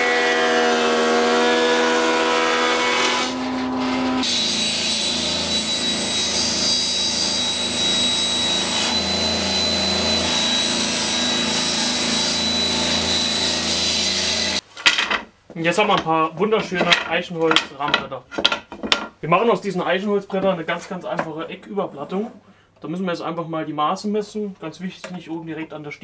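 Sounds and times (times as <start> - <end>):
woodworking cutter milling board: 0.0 - 14.6.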